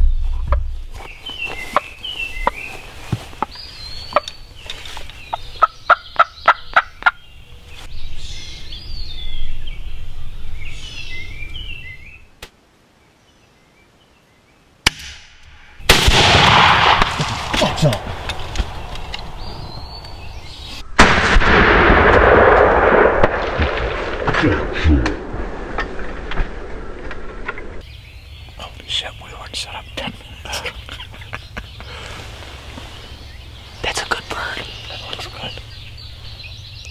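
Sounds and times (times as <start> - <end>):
turkey gobbling: 5.6 - 7.2.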